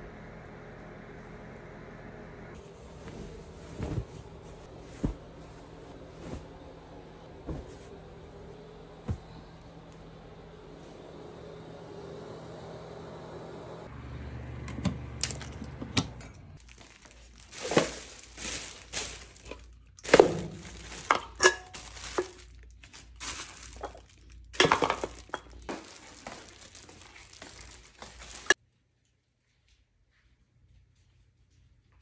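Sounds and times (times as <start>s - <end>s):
plastic bags crinkling: 16.6s - 28.6s.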